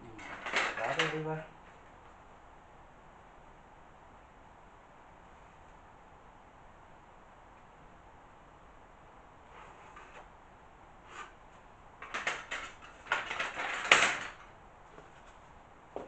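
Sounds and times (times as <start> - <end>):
tools scraping and clattering: 0.1 - 1.8, 12.0 - 15.4.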